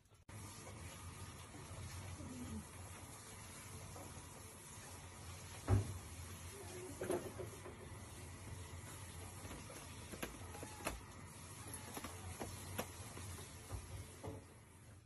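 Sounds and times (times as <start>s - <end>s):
cat scratching cardboard: 3.8s - 14.2s.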